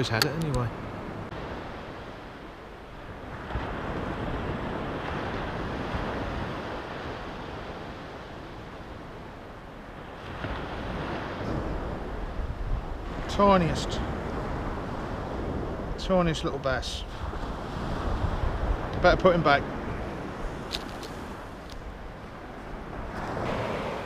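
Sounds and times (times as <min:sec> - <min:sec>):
wind on microphone: 0:00.0 - 0:24.0
surf breaking on sandy beach: 0:03.2 - 0:09.2, 0:17.0 - 0:24.0.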